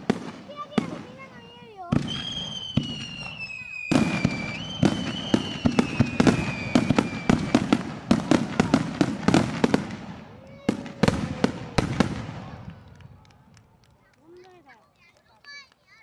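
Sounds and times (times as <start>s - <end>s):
firework shells bursting: 1.9s - 12.6s
high falling firework whistle: 2.0s - 7.9s.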